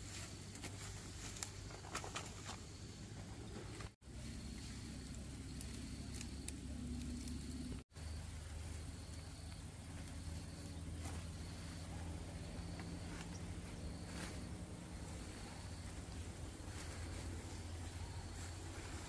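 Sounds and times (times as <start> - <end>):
steady low hum: 0.0 - 19.0
insect chirping: 4.1 - 19.0
vine stems snapping and rustling: 5.0 - 7.8.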